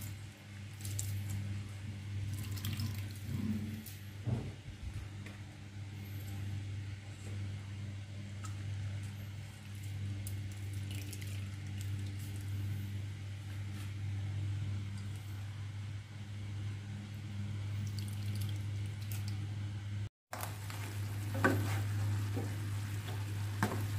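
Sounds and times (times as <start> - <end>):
steady low hum: 0.0 - 23.9
wet splashes: 10.5 - 12.4.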